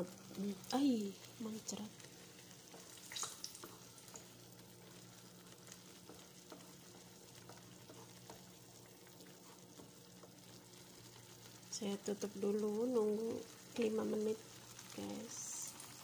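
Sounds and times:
sauce sizzling in a frying pan: 0.0 - 16.0
wooden spoon tapping and scraping: 3.6 - 10.7, 13.9 - 14.3.

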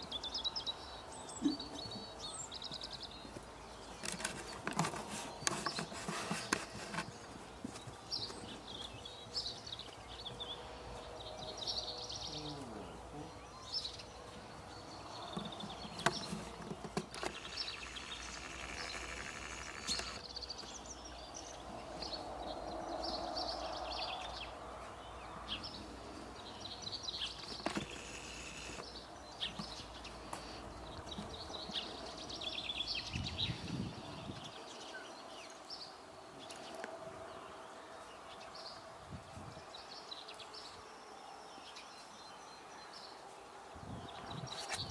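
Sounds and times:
small birds chirping: 0.0 - 44.9
sharp clicks: 16.0 - 20.3.

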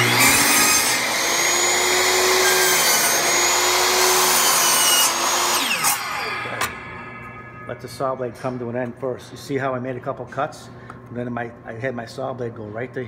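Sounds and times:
miter saw cutting board: 0.0 - 7.4.

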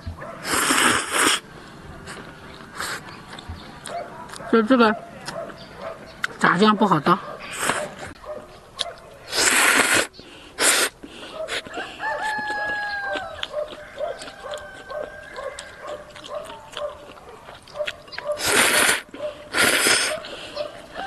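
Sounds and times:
noodles slurped: 0.4 - 1.5, 9.3 - 11.0, 18.3 - 20.6
chicken clucking: 11.3 - 18.4
rooster crowing: 11.7 - 16.2.

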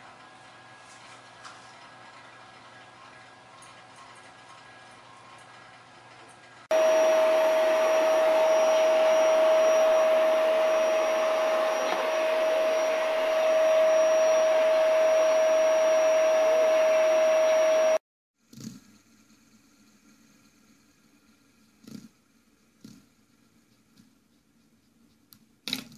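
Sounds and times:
electric appliance motor whining: 6.7 - 18.0.

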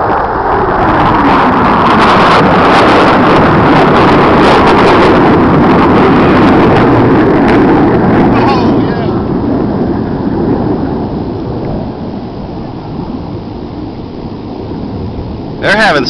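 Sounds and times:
jet engines roaring: 0.0 - 16.0.

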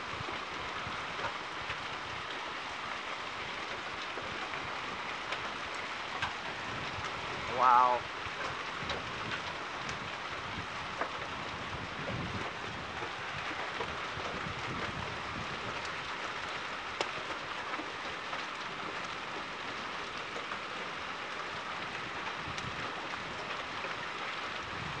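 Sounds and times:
heavy rain hissing: 4.1 - 8.3.

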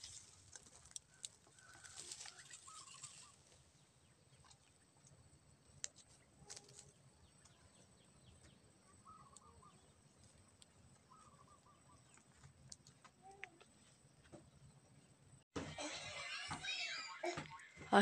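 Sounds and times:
fire crackling in dry grass: 0.0 - 3.8
distant bird calls: 1.0 - 4.8, 6.3 - 12.4.

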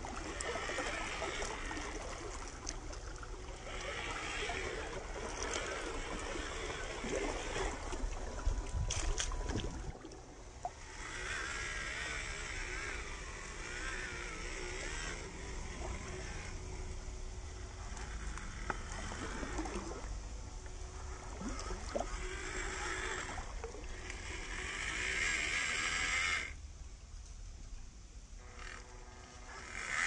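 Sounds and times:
small electric motor whining: 0.0 - 26.6, 28.4 - 30.0.

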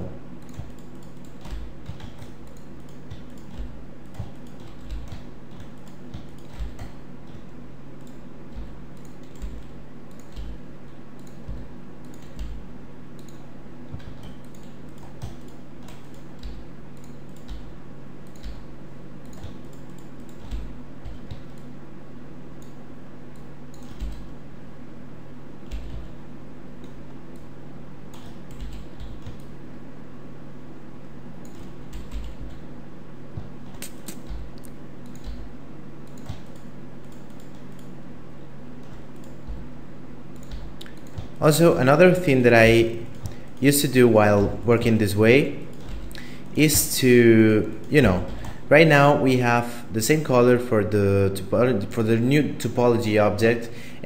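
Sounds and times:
steady low hum: 0.0 - 54.0
keyboard keys clicking: 0.4 - 7.4.

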